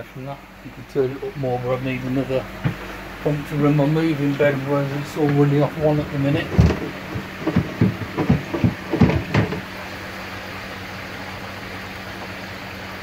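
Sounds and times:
air pump humming: 0:00.0 - 0:13.0
aerated water churning: 0:00.2 - 0:13.0
knocks and bumps: 0:02.5 - 0:02.9, 0:05.0 - 0:09.7.

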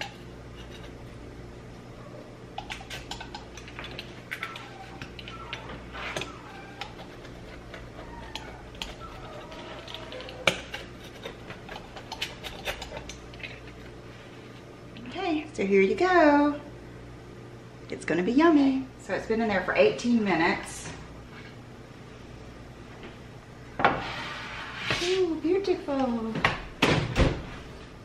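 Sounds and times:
pizza cutter crackling through flatbread: 0:00.0 - 0:01.2, 0:02.6 - 0:14.6.

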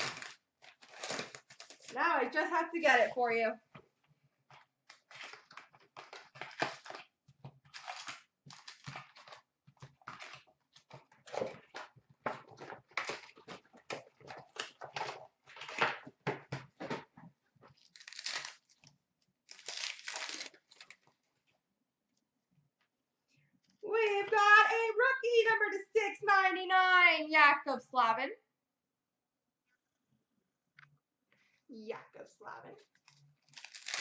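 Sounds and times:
foil packs crinkling and tearing: 0:00.0 - 0:02.3, 0:04.8 - 0:11.8, 0:12.4 - 0:16.0, 0:17.7 - 0:21.1, 0:32.9 - 0:34.0.

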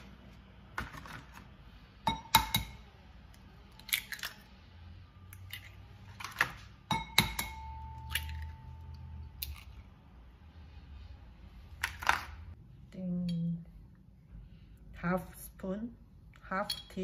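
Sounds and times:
eggshell cracking: 0:03.7 - 0:04.4.

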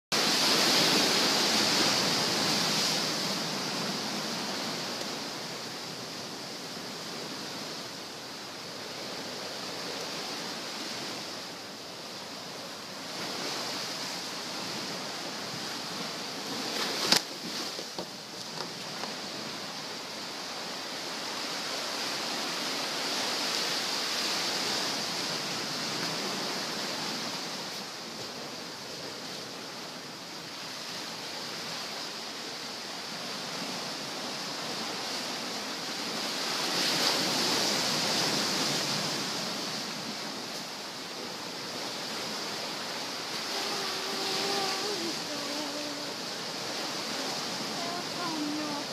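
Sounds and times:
waves breaking on beach: 0:00.1 - 0:48.9.

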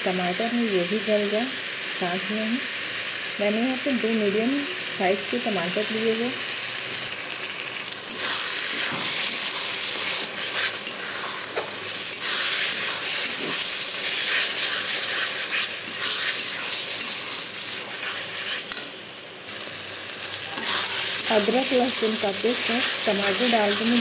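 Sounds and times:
vegetables sizzling in hot oil: 0:00.0 - 0:24.0
metal spatula scraping pan: 0:08.1 - 0:19.0, 0:20.6 - 0:24.0.

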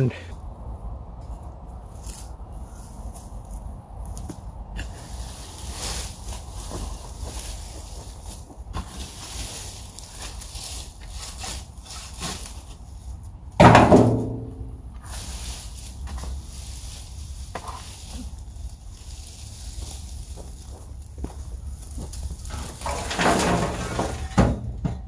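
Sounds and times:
rake scraping pine straw: 0:01.9 - 0:13.4, 0:14.6 - 0:24.4
tool clanging on metal tub: 0:22.8 - 0:25.0.

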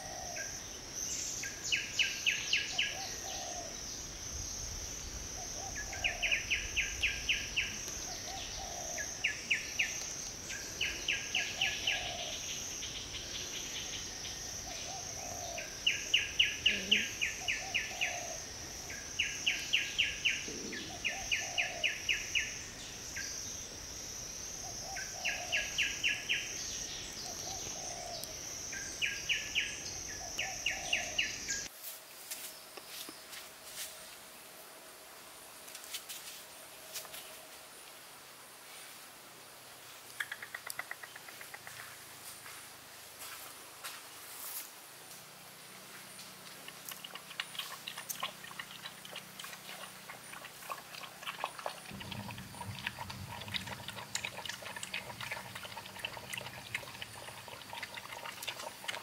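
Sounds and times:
rapid bird chirps: 0:40.2 - 0:41.9.

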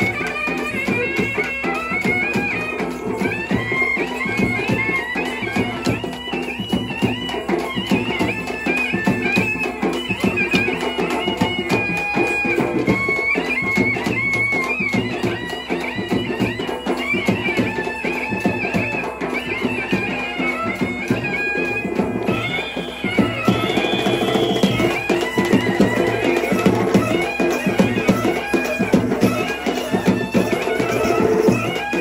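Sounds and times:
double-reed wind instrument melody: 0:00.0 - 0:32.0
fast steady drumming: 0:00.0 - 0:32.0.

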